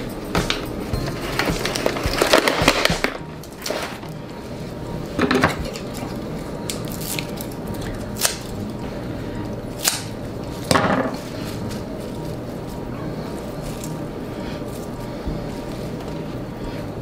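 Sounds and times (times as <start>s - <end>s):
lettuce and plastic container rustling: 1.0s - 4.2s, 10.4s - 16.8s
kitchen scissors snipping: 9.8s - 10.1s.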